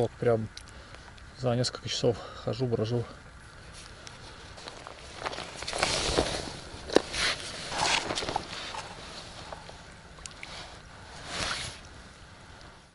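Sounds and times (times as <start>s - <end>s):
river water splashing: 3.4s - 12.5s.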